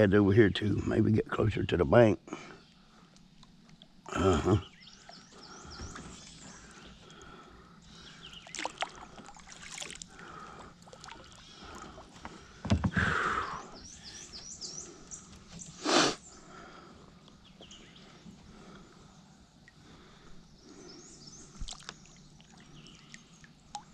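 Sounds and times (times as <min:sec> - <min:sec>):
paddle splashing in water: 0:08.5 - 0:10.1
knocks against plastic hull: 0:12.6 - 0:13.1.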